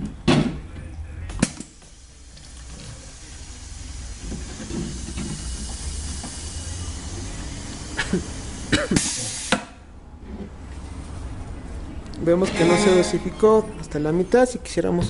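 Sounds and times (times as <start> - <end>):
steady hiss of air: 1.7 - 9.8.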